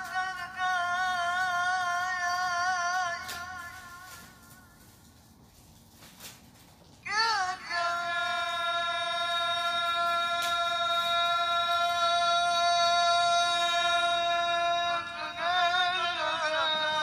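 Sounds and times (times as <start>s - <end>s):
man reciting through microphone: 0.0s - 5.2s, 7.0s - 17.0s.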